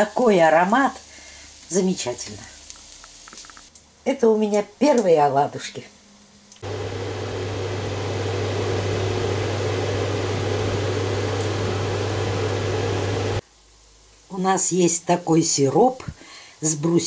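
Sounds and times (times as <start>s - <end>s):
appliance electrical hum: 6.1s - 14.3s
fan rushing: 6.6s - 13.4s.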